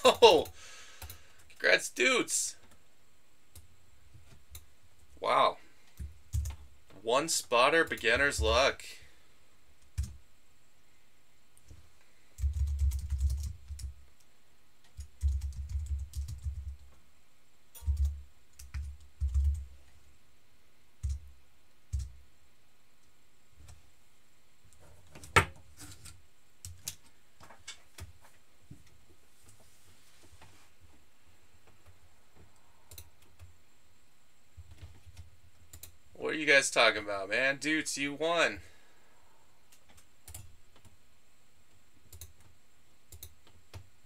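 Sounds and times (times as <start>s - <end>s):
typing on computer keyboard: 6.0s - 6.6s, 12.4s - 14.0s, 14.8s - 16.9s, 17.8s - 19.7s.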